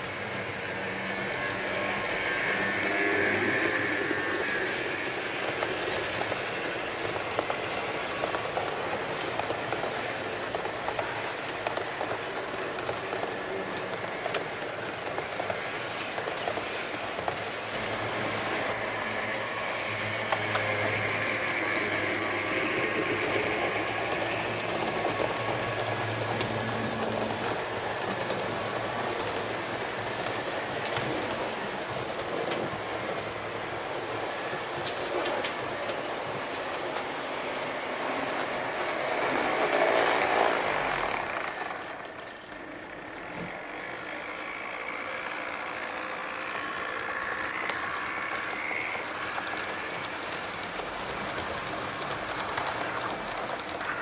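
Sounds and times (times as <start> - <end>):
small motor whine: 0.0 - 8.1, 17.7 - 27.7, 38.3 - 51.6
wheels clicking over rail joints: 0.0 - 54.0.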